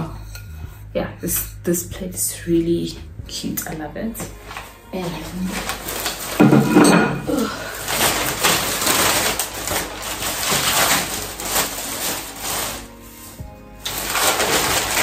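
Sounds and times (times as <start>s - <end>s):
packaging rustling and crinkling: 4.2s - 15.0s.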